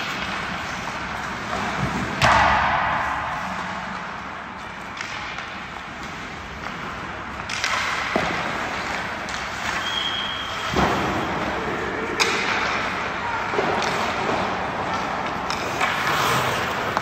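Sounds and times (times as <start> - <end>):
hockey sticks and pucks clacking: 0.0 - 17.0
skates scraping on ice: 0.0 - 17.0
brief high squeal: 9.8 - 10.7.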